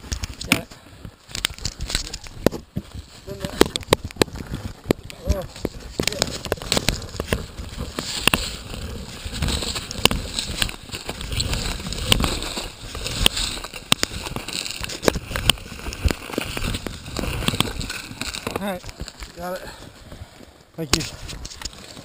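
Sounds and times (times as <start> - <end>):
dirt bike frame knocking and scraping: 1.3 - 20.2
dry leaves crackling: 5.4 - 19.6.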